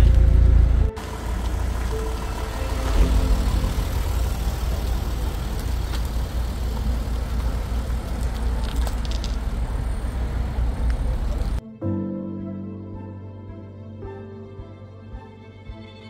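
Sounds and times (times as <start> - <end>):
car engine rumbling: 0.0 - 11.6.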